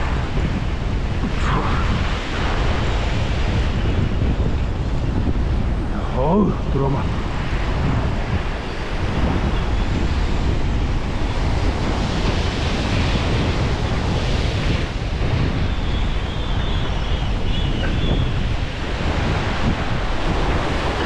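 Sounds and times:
sea waves breaking over rocks: 0:00.0 - 0:21.0
wind buffeting microphone: 0:00.0 - 0:21.0.

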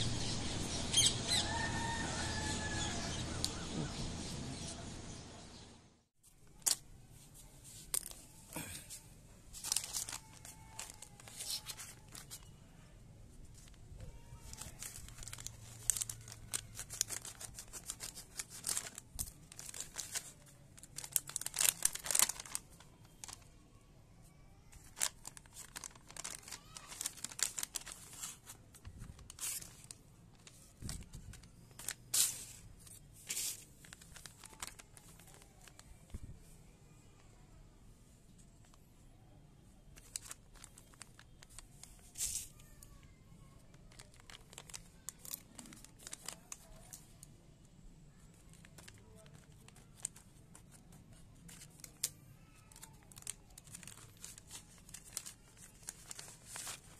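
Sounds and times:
foil packet crinkling: 0:06.4 - 0:06.9, 0:07.7 - 0:08.9, 0:09.5 - 0:12.5, 0:13.5 - 0:23.5, 0:24.7 - 0:36.2, 0:40.0 - 0:43.0, 0:43.6 - 0:47.3, 0:48.1 - 0:56.9
paper tearing and rustling: 0:09.5 - 0:12.5, 0:13.5 - 0:23.4, 0:24.7 - 0:35.9, 0:40.0 - 0:42.8, 0:43.7 - 0:47.0, 0:48.4 - 0:56.9.

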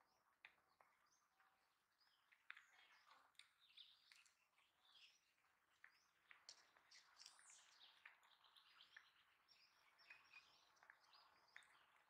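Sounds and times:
faint birds chirping: 0:00.0 - 0:12.0.

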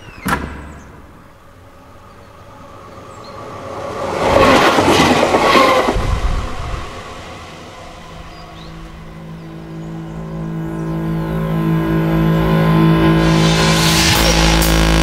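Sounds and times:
loud rushing noise: 0:01.0 - 0:10.0, 0:12.4 - 0:15.0
sharp hit: 0:13.0 - 0:15.0.

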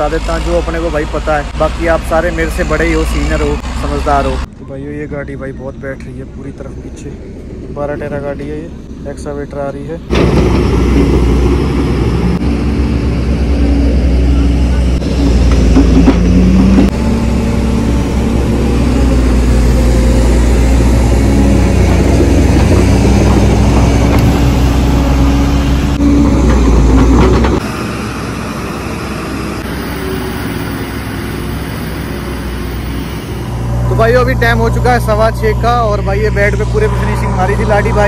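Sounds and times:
excavator diesel engine running: 0:00.0 - 0:38.0.

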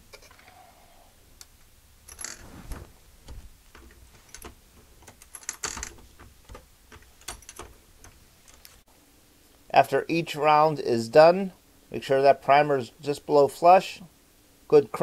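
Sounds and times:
reloading press clicks and clatters: 0:03.7 - 0:08.8.

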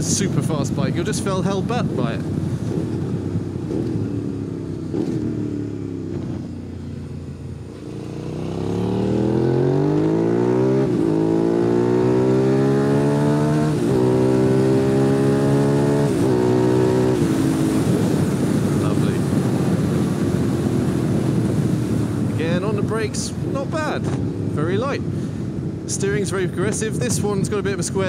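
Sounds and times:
motorcycle engine accelerating: 0:02.2 - 0:22.8.

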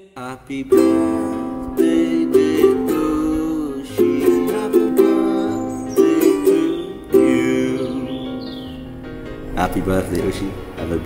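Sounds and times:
ukulele strumming: 0:00.7 - 0:09.4.

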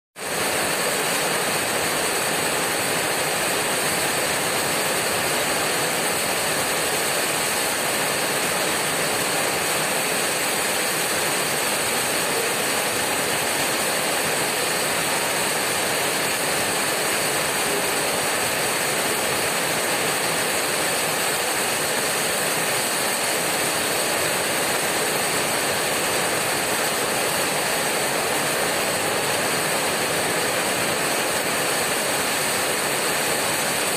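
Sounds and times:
heavy rain on tin roof: 0:00.2 - 0:33.9.

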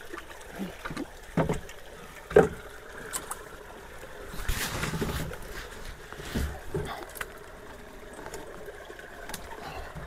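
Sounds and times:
faint water wash: 0:00.0 - 0:10.0.

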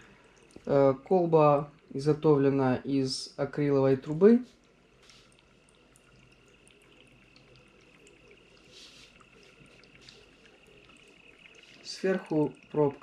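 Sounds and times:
water bubbling with small pops: 0:00.0 - 0:00.7, 0:04.1 - 0:13.0
faint high whine: 0:00.0 - 0:13.0.

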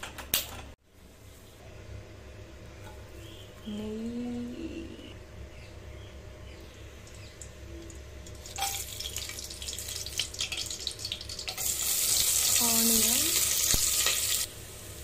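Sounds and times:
spices crackling in hot oil: 0:06.8 - 0:15.0
onions sizzling in oil: 0:08.3 - 0:15.0.

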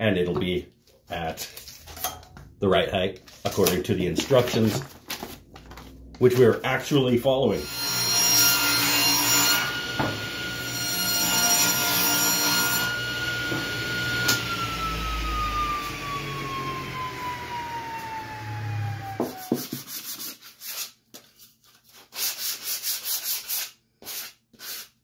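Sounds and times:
table saw cutting plywood: 0:07.6 - 0:19.9
saw blade whine winding down: 0:13.8 - 0:19.4.

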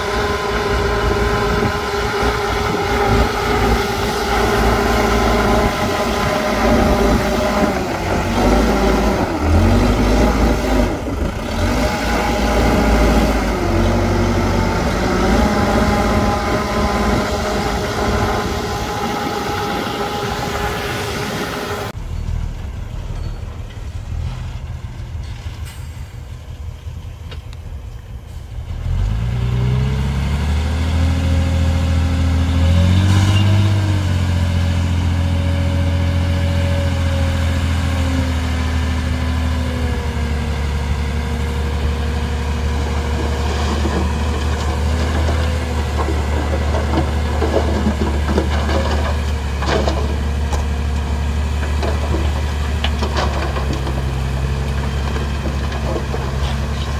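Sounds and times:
heavy diesel engine revving: 0:00.0 - 0:22.0, 0:28.7 - 0:56.9.

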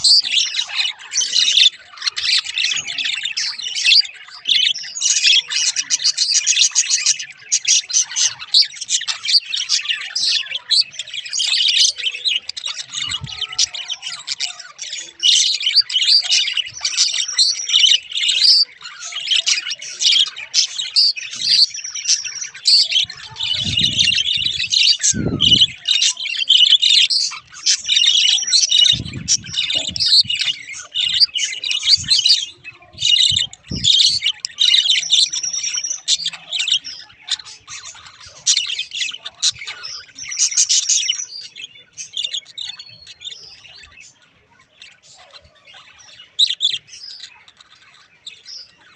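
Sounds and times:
budgerigars chattering: 0:00.0 - 0:48.9.

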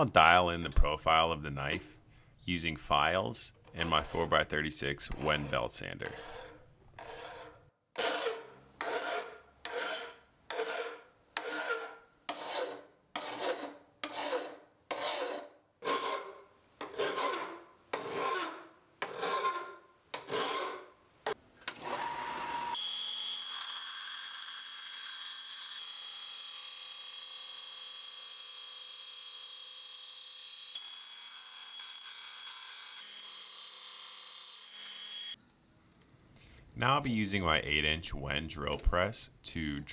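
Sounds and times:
hand file rasping on steel: 0:05.1 - 0:20.9.

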